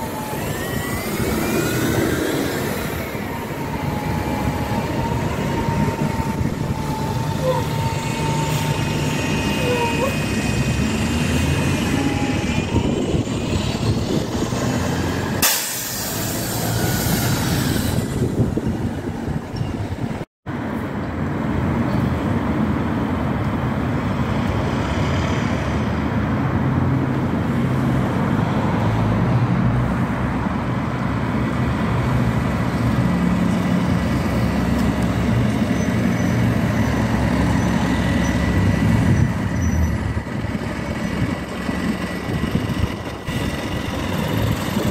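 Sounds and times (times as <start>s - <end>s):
bus engines running: 0.0s - 44.9s
compressed air hiss: 15.4s - 17.9s.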